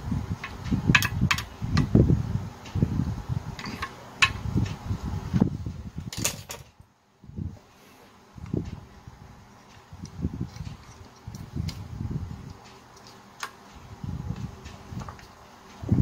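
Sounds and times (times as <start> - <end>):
parts clicking and knocking: 0.4 - 1.9, 3.6 - 4.8.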